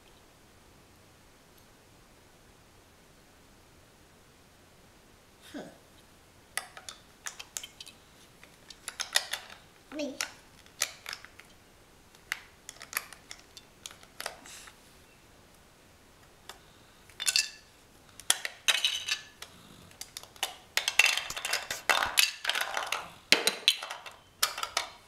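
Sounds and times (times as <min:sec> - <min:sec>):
plastic toy bricks clattering: 0:06.6 - 0:07.9, 0:08.6 - 0:11.5, 0:12.3 - 0:14.4, 0:17.1 - 0:25.0.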